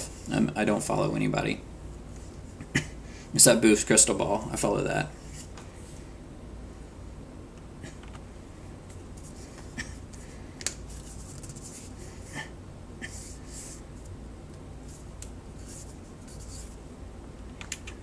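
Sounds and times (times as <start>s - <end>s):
low steady hum: 0.0s - 18.0s
hands rubbing together: 9.2s - 12.2s.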